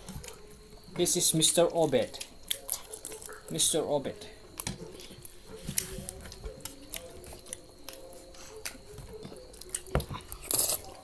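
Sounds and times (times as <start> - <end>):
chewing: 2.2 - 3.6, 4.6 - 11.0.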